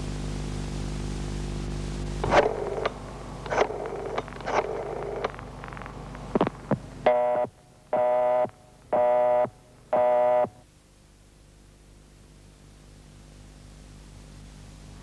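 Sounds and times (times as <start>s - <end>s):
faint low hum: 0.0s - 15.0s
sharp clicks: 2.2s - 6.8s
telephone busy signal tones: 7.1s - 10.6s.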